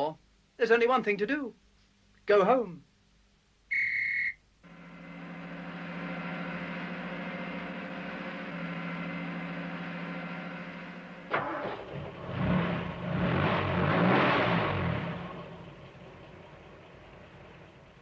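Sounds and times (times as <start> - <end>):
fire engine motor running: 4.6 - 13.1, 14.7 - 18.0.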